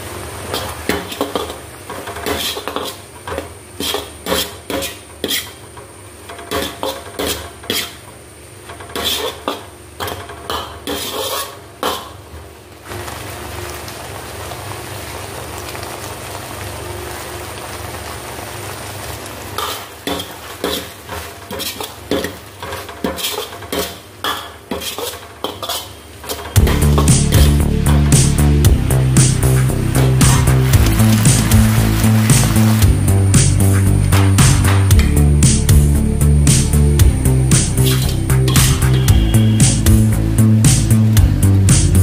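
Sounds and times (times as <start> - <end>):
sauce sizzling: 0.0 - 42.0
metal ladle scraping steel wok: 6.4 - 8.0, 8.8 - 12.1, 19.6 - 27.6, 37.6 - 39.6.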